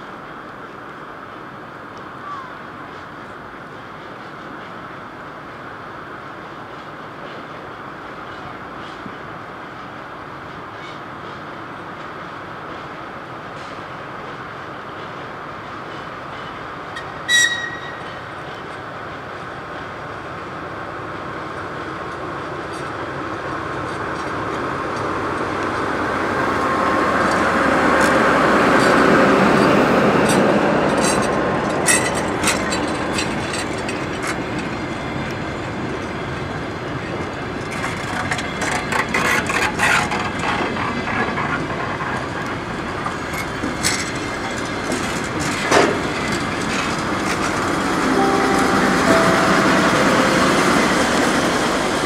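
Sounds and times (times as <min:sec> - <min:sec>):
diesel train engine: 0:00.1 - 0:52.0
train wheels clicking on rail joints: 0:06.4 - 0:47.9
train horn blast: 0:48.0 - 0:52.0.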